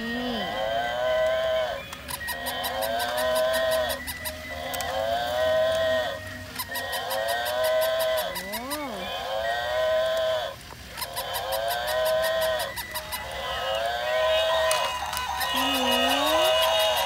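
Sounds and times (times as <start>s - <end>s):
high-pitched toy mooing: 0.0s - 17.0s
fast even ticking: 2.0s - 4.9s, 6.6s - 9.0s, 11.0s - 17.0s.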